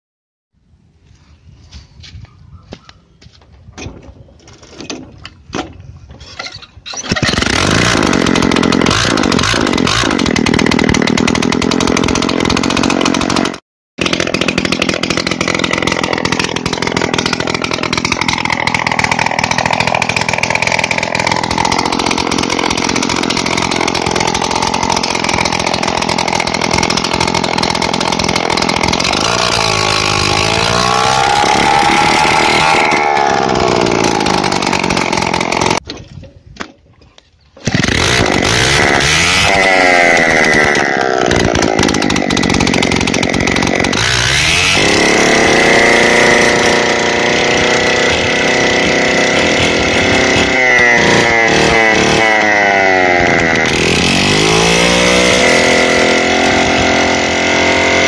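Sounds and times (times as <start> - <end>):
moped engine running without silencer: 14.1 - 35.8, 45.2 - 58.0.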